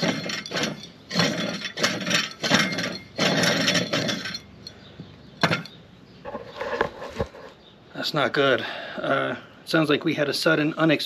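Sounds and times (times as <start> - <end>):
compressor grinding when turned: 0.0 - 7.3.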